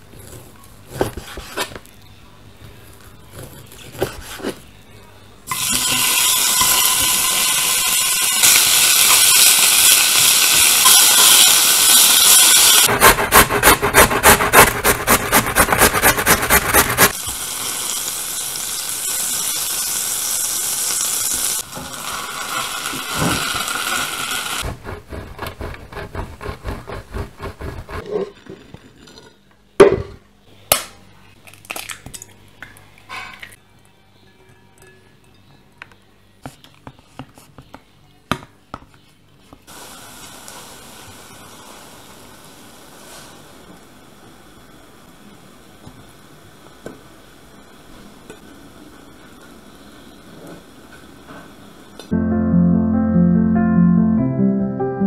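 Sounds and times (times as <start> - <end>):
frying sizzle: 5.5 - 12.9, 17.0 - 24.6, 39.7 - 52.1
food rubbed on metal grater: 12.8 - 17.1, 24.6 - 28.0
knife cutting on wooden board: 12.9 - 17.1, 24.6 - 28.1
cheese scraped on grater: 12.9 - 17.2, 24.6 - 28.1.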